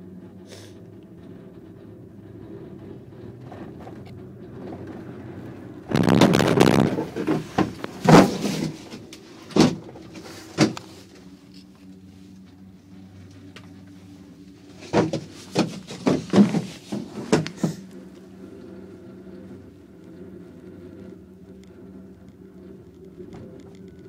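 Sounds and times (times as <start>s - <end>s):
gondola cabin humming: 0.0s - 24.0s
rattling clatter over tower: 1.4s - 9.0s, 14.7s - 17.8s
sharp clunks of rocking cabin: 14.8s - 17.9s.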